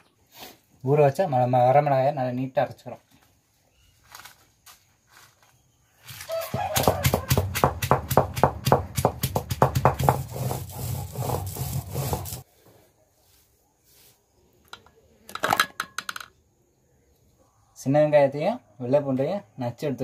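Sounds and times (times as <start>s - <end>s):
sharp knocks: 6.6s - 10.3s
grinding stone scraping strokes: 9.6s - 12.5s.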